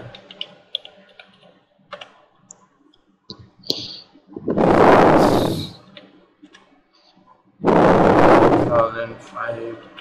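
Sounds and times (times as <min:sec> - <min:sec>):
keyboard and mouse clicks: 0:00.0 - 0:04.0, 0:05.9 - 0:06.7
loud rush of noise: 0:03.8 - 0:05.9, 0:07.6 - 0:09.7.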